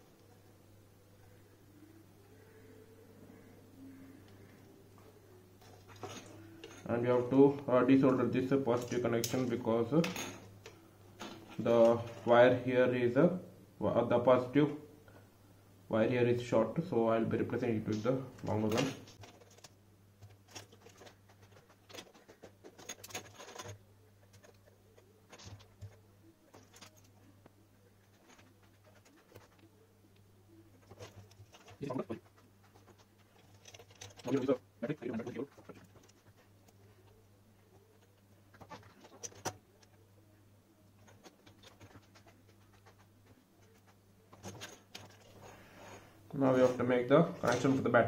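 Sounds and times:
low steady hum: 0.0 - 48.0
small parts clicking and tapping: 17.9 - 27.2, 28.1 - 37.2.

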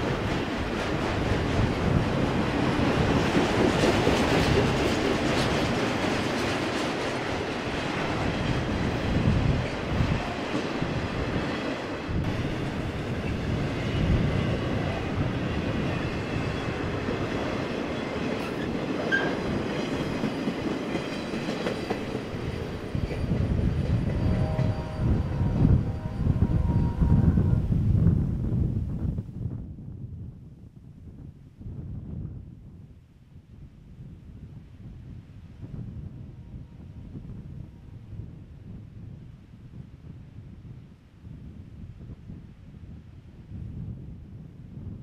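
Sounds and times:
freight train clattering on rails: 0.0 - 26.8
wind buffeting microphone: 0.0 - 45.0.

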